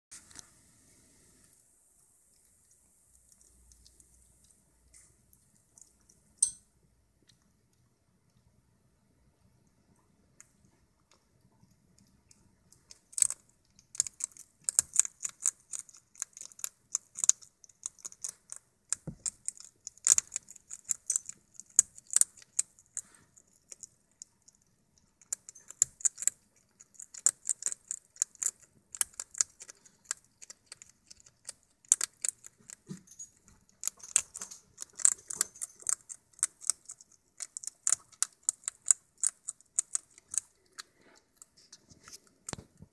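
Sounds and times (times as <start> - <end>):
hedgehog crunching dry kibble: 10.5 - 42.9.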